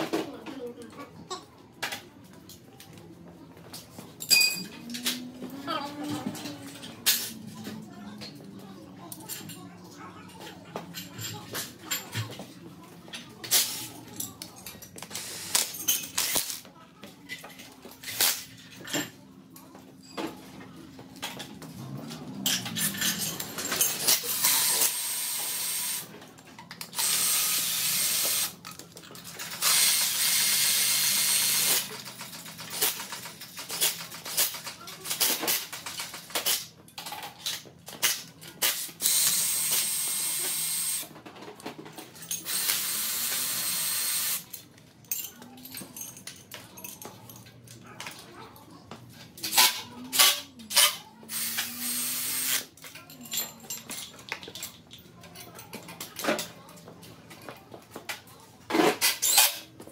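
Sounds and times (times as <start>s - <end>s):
metal clicks of chain and tools: 21.3s - 26.0s, 44.2s - 48.2s, 52.4s - 56.5s.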